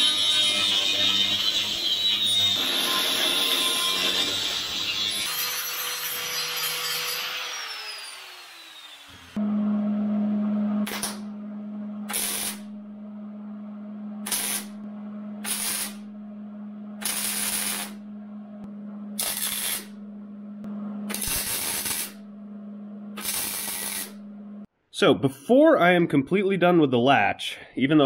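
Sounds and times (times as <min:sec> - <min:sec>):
steady low hum: 0:09.4 - 0:24.7
welder bursts: 0:12.1 - 0:12.7, 0:14.2 - 0:14.8, 0:15.4 - 0:16.1, 0:17.0 - 0:18.0, 0:19.2 - 0:20.0, 0:21.1 - 0:22.2, 0:23.2 - 0:24.2.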